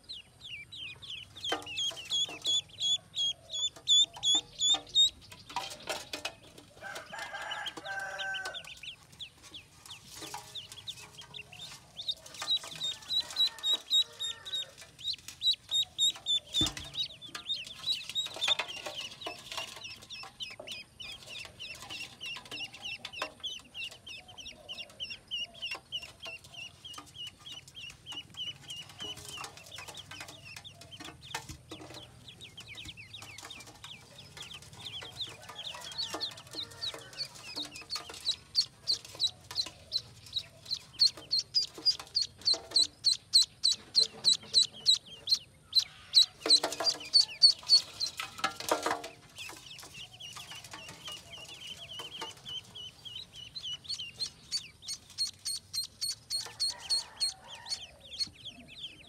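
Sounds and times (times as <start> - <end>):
ducklings peeping: 0.0 - 59.0.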